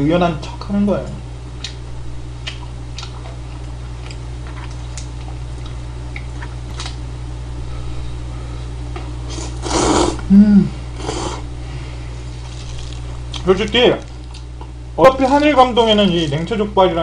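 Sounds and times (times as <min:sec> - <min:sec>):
low electrical hum: 0:00.0 - 0:17.0
chewing noodles: 0:02.4 - 0:07.0.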